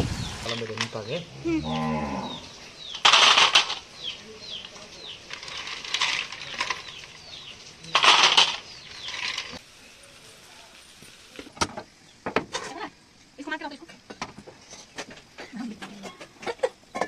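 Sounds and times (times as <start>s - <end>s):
small birds chirping: 0.0s - 10.6s
snail shells clattering on steel: 2.8s - 9.6s.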